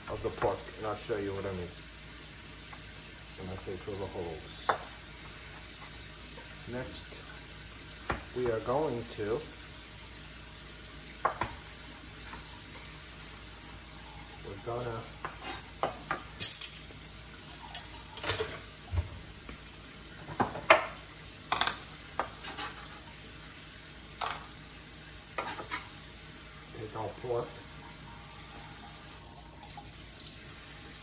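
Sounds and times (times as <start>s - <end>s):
knife tapping on cutting board: 11.2s - 11.6s.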